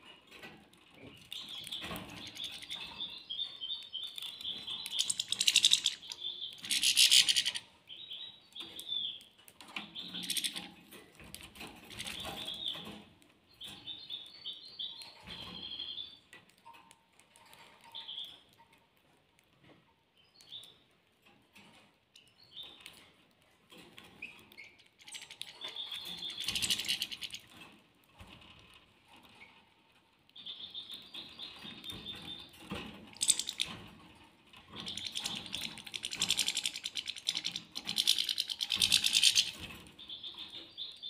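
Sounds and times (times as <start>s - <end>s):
caged birds chirping: 0.0s - 18.7s, 19.6s - 41.0s
rapid twittering birdsong: 1.1s - 10.8s, 11.6s - 16.2s, 24.0s - 27.7s, 30.4s - 33.9s, 34.6s - 41.0s.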